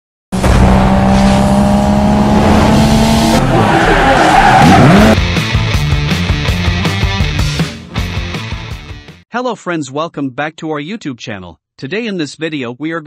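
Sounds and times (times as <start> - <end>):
car engine tone: 0.4 - 5.2
tyre screech: 3.4 - 5.2
music with a beat: 5.2 - 9.2.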